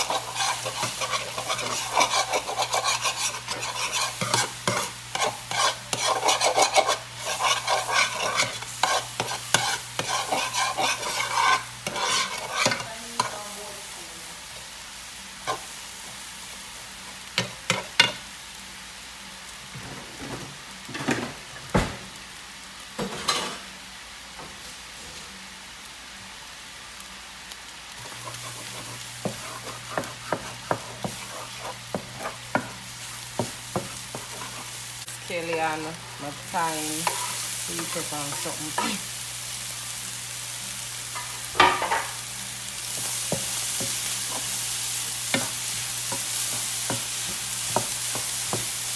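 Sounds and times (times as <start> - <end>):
metal spoon scraping and stirring: 0.0 - 13.3, 28.0 - 34.7, 36.7 - 39.0
eggs sizzling in a frying pan: 0.0 - 48.9.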